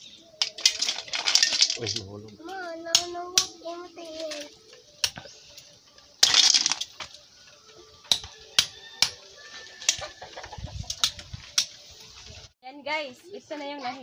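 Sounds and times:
shells crunching and clicking: 0:00.4 - 0:02.1, 0:06.2 - 0:07.2.

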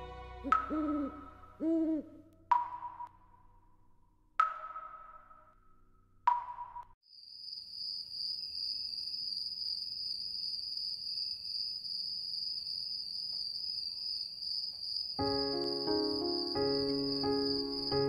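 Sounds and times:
crickets chirping: 0:07.1 - 0:18.0.

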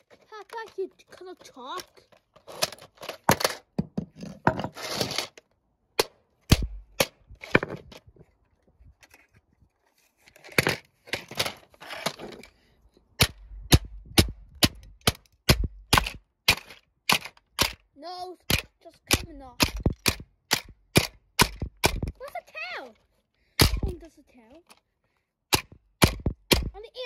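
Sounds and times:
plastic toy being smashed: 0:01.4 - 0:05.4, 0:13.2 - 0:17.8, 0:18.5 - 0:22.5, 0:23.6 - 0:24.0, 0:25.5 - 0:26.7.

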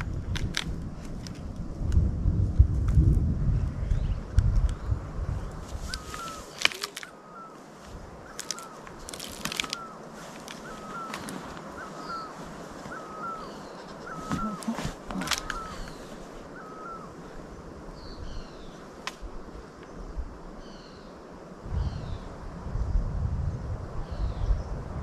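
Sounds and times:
sharp clicks: 0:05.9 - 0:07.1, 0:08.3 - 0:11.7, 0:15.1 - 0:15.7
faint bird chirps: 0:08.2 - 0:10.0, 0:10.6 - 0:17.3
bird repeating hooked call: 0:12.9 - 0:16.0.

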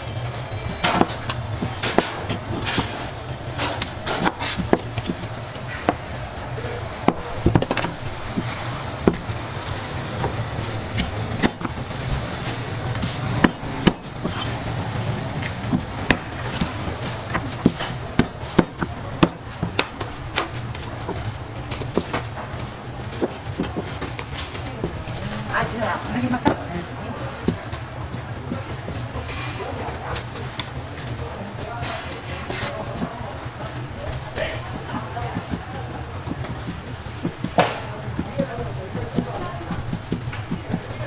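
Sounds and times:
knife chopping on cutting board: 0:07.0 - 0:09.3, 0:10.2 - 0:11.9.

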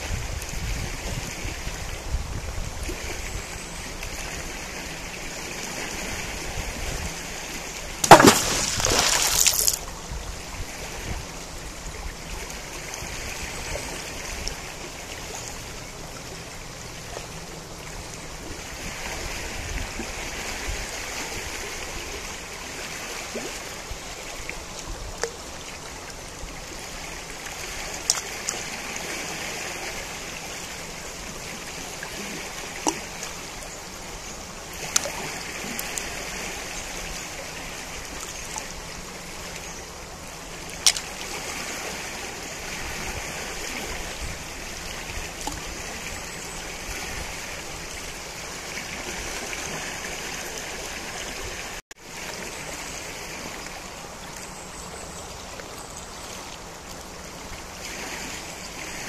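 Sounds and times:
river water rushing: 0:00.0 - 0:59.0.

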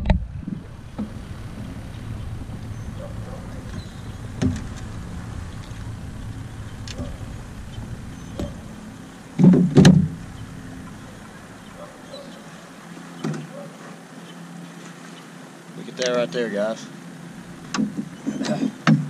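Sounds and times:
loud low sounds: 0:00.0 - 0:12.8
electric trolling motor humming: 0:00.0 - 0:18.4
light knocks against boat: 0:03.6 - 0:04.9.

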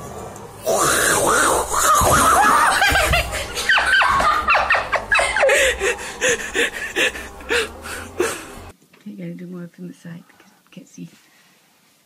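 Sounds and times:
person laughing in gasping bursts: 0:01.7 - 0:08.7.

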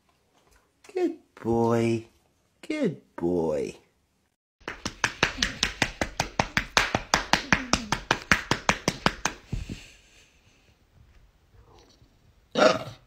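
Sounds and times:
hand patting a dog: 0:04.6 - 0:09.9.

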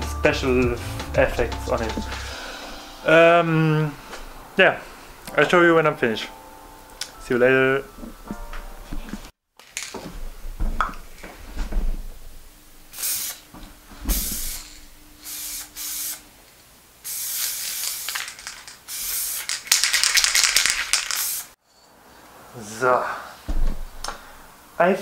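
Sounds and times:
spray paint hissing: 0:12.9 - 0:13.5, 0:14.1 - 0:16.2, 0:17.0 - 0:21.6.

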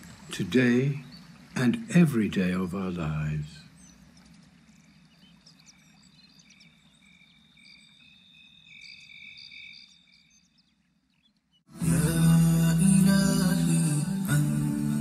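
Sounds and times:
crickets and frogs trilling: 0:00.0 - 0:11.5.

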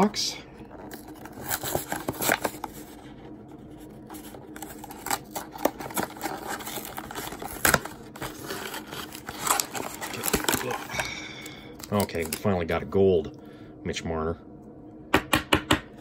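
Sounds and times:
cardboard and wrapper scraping: 0:00.7 - 0:11.1
cardboard tearing: 0:00.9 - 0:03.0, 0:04.1 - 0:11.0.

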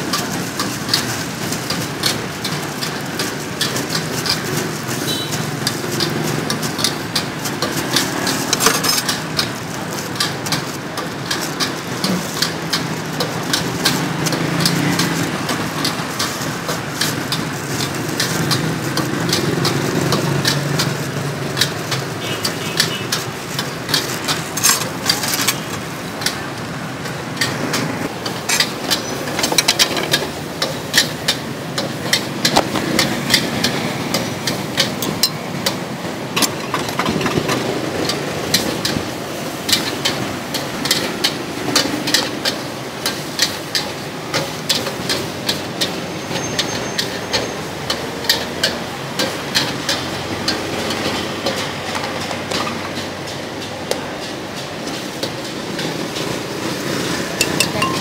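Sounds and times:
utensils and ice clinking on glass: 0:04.3 - 0:09.6, 0:22.2 - 0:25.9, 0:28.2 - 0:30.4, 0:36.4 - 0:37.8, 0:57.4 - 0:58.0.

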